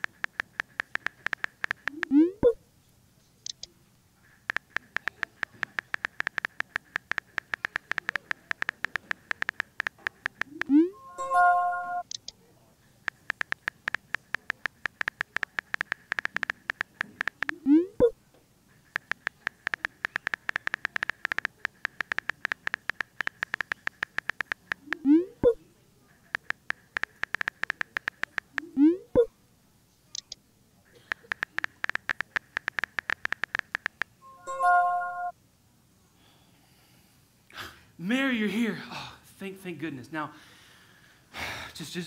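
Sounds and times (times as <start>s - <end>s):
phone keyboard tap clicks: 0.0s - 2.1s, 4.4s - 10.8s, 13.1s - 17.6s, 18.9s - 25.6s, 26.4s - 28.7s, 31.1s - 34.1s
faint high tone: 10.5s - 12.1s, 34.2s - 35.4s.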